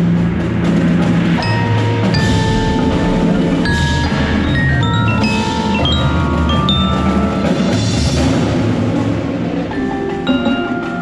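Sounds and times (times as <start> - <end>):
xylophone and glockenspiel notes: 1.4 - 8.6, 9.7 - 11.0.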